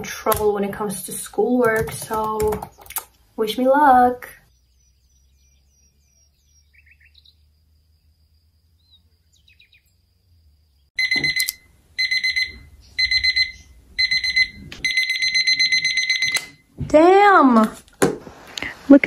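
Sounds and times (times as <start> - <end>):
alarm clock beeping: 11.0 - 16.7.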